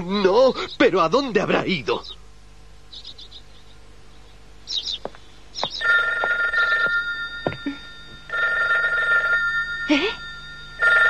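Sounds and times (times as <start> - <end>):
telephone ringing: 5.8 - 11.0.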